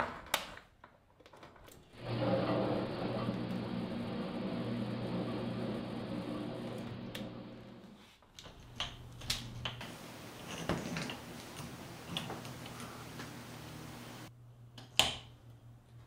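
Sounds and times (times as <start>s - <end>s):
appliance hum: 1.7s - 16.0s.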